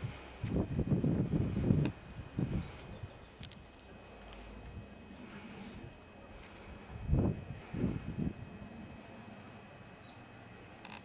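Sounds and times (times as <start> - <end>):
wind buffeting microphone: 0.0 - 10.1.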